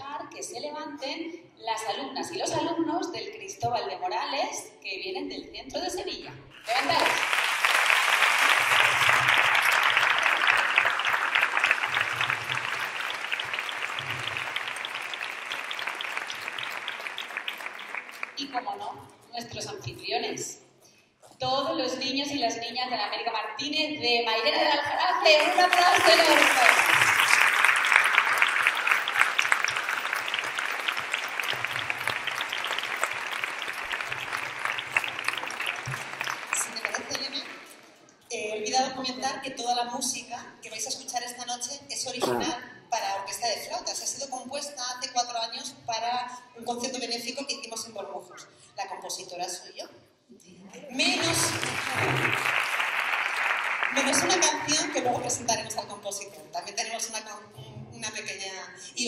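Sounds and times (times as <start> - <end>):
audience applauding: 6.6 - 18.4, 25.3 - 37.8, 51.0 - 55.4.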